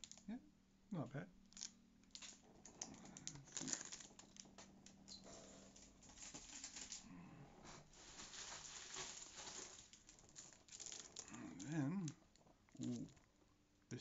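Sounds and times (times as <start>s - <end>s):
plastic packaging rustling: 1.5s - 13.2s.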